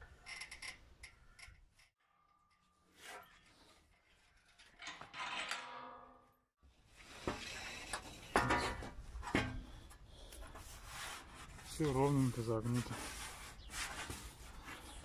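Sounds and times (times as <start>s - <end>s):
metal sheet knocks and clatter: 8.3s - 9.6s.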